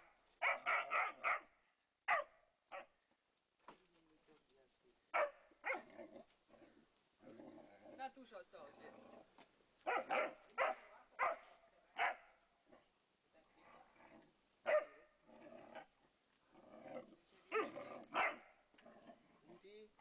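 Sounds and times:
dogs barking: 0:00.4 - 0:01.5, 0:02.1 - 0:02.9, 0:05.1 - 0:05.9, 0:09.8 - 0:12.3, 0:14.7 - 0:15.0, 0:17.5 - 0:18.5.

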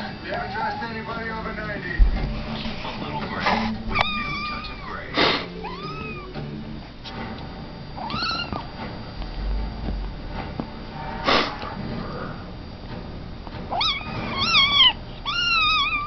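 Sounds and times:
kitten meows: 0:03.9 - 0:05.0, 0:05.6 - 0:06.3, 0:08.0 - 0:08.6, 0:13.7 - 0:16.0
loud noisy bursts: 0:10.8 - 0:12.7.

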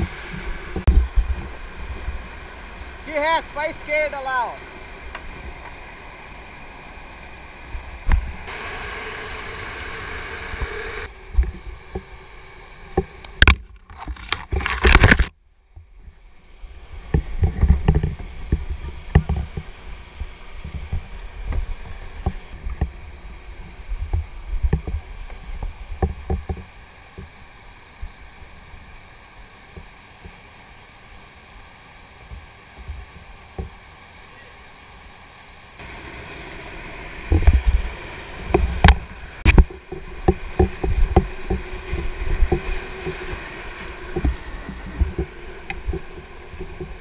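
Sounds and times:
whitewater rapids rushing: 0:00.0 - 0:11.1, 0:35.8 - 0:47.0
kayaks knocking on rocks: 0:38.5 - 0:47.0.

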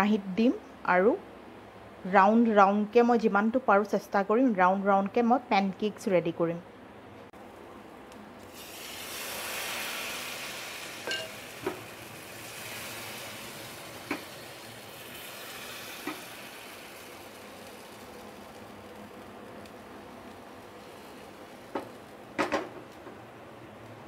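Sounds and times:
batter sizzling in a pan: 0:08.4 - 0:22.4.

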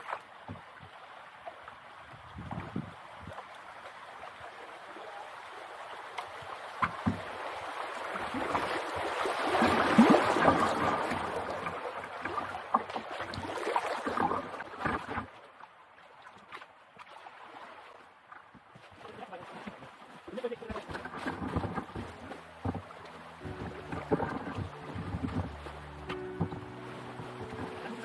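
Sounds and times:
paddle strokes splashing: 0:00.0 - 0:28.0
water rushing over riverbed: 0:00.0 - 0:28.0.

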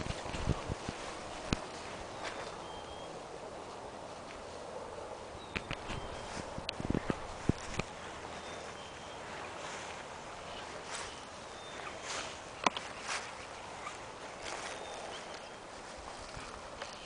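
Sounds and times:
dry grass rustling: 0:00.0 - 0:17.0
sharp clicks: 0:05.5 - 0:06.0.

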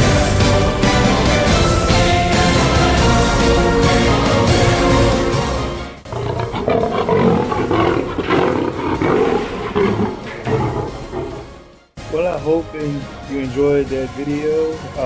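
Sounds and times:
background music: 0:00.0 - 0:15.0
lion roaring: 0:06.0 - 0:11.7.

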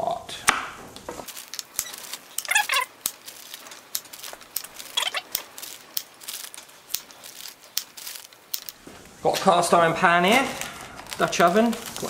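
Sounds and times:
knife chopping on wooden board: 0:00.4 - 0:01.2
high wavering squeals: 0:01.8 - 0:02.9, 0:04.9 - 0:05.3.

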